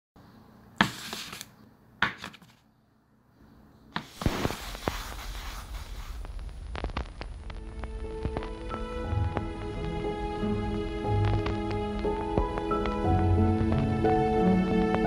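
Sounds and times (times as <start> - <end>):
vinyl surface noise with crackles: 0.8 - 2.6, 4.0 - 13.9.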